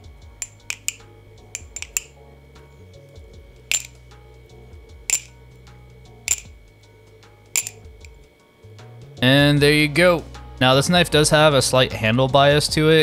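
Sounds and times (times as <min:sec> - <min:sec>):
metallic clacks of knife handles: 0:00.4 - 0:02.2, 0:03.7 - 0:04.0, 0:05.1 - 0:05.4, 0:06.3 - 0:06.6, 0:07.6 - 0:08.2.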